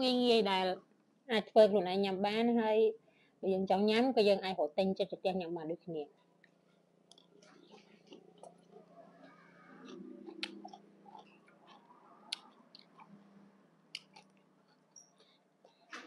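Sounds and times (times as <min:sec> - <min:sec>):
sharp mouth clicks: 0:07.1 - 0:13.1, 0:13.9 - 0:15.8
person chewing crunchy food: 0:07.1 - 0:13.2, 0:13.9 - 0:15.9.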